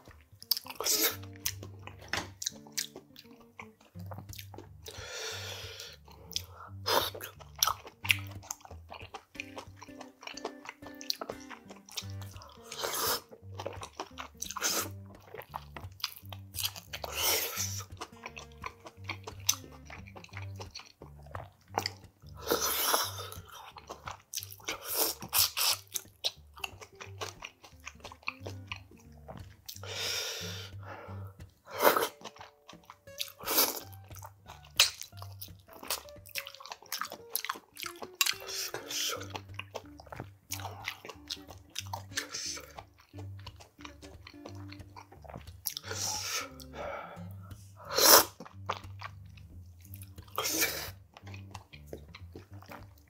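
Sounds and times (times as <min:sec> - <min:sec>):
slurping sauce: 0:00.0 - 0:53.0
soft background music: 0:00.0 - 0:53.0
wet chewing: 0:00.0 - 0:53.0.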